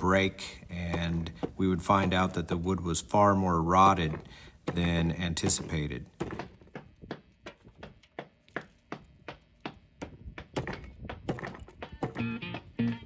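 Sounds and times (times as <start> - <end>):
guitar music: 12.0 - 13.0.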